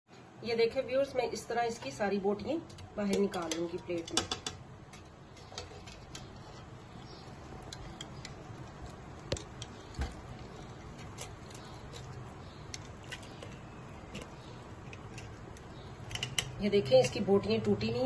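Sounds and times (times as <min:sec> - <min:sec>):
wire skimmer scraping clay pot: 0:01.8 - 0:17.6.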